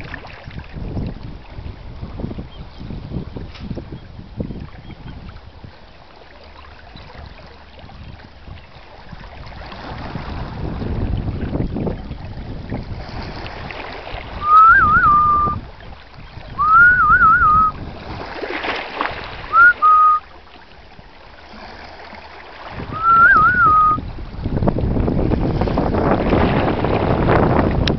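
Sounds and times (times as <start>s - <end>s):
wind rumbling on microphone: 0.0s - 27.9s
warbling whistles: 14.4s - 15.6s, 16.6s - 17.8s, 19.5s - 20.2s, 22.9s - 24.0s.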